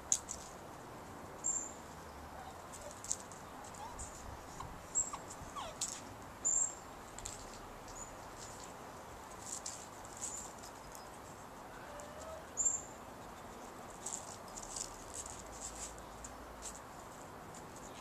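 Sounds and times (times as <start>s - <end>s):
dog paws on stones and leaves: 0.0s - 6.3s, 7.1s - 12.5s, 13.2s - 18.0s
puppy chirp: 3.6s - 5.9s.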